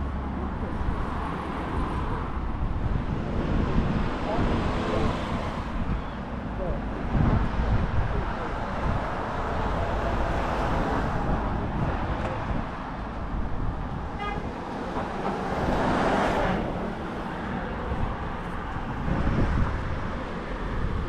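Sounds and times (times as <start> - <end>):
road traffic: 0.0 - 21.0
car passing: 7.3 - 21.0.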